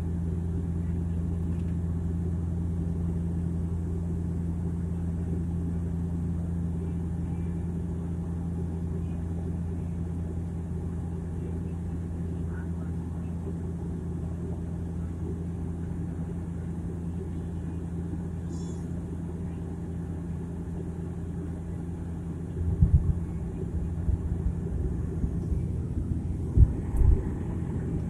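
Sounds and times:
turboprop cabin drone: 0.0 - 28.0
low thumps and rumbling: 22.6 - 23.3, 23.9 - 28.0.

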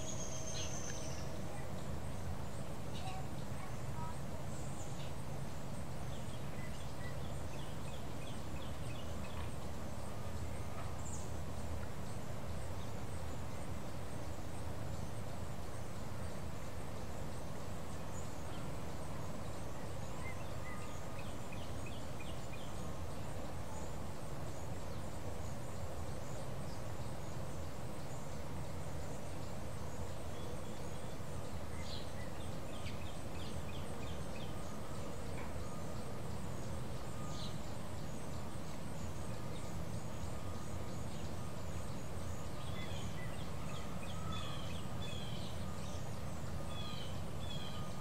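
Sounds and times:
bird chirping: 0.0 - 1.8, 29.0 - 48.0.

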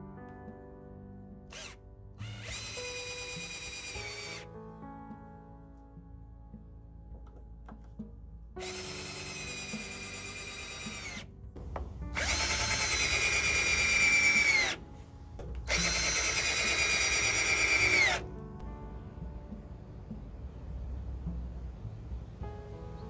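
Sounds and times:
cordless drill driving screws: 1.5 - 4.5, 8.6 - 11.3, 12.2 - 14.8, 15.7 - 18.2.

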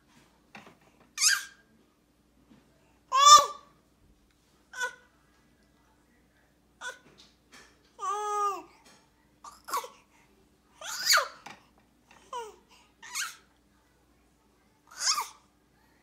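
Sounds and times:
baby squawking: 1.2 - 1.6, 3.1 - 3.6, 10.8 - 11.4, 14.9 - 15.4.

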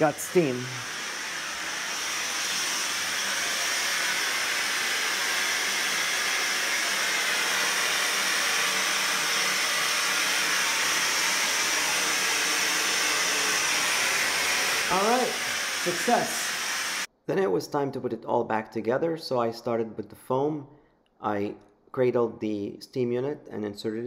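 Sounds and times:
steam hissing: 0.0 - 17.1.

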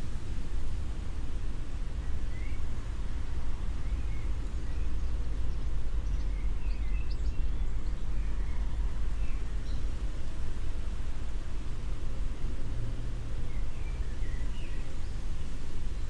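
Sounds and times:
low city rumble: 0.0 - 16.0
faint bird chirps: 2.0 - 2.7, 3.5 - 10.0, 13.4 - 16.0.

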